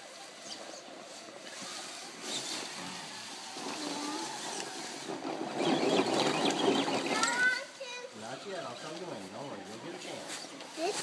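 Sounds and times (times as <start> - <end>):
toy car motor whirring: 1.3 - 7.7.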